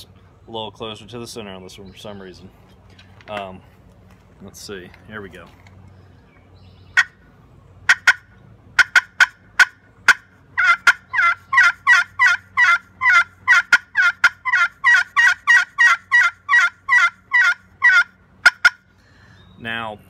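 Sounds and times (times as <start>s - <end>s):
turkey call clucks: 6.9s - 7.2s, 7.8s - 18.9s
turkey call yelps: 6.9s - 7.2s, 7.9s - 18.9s.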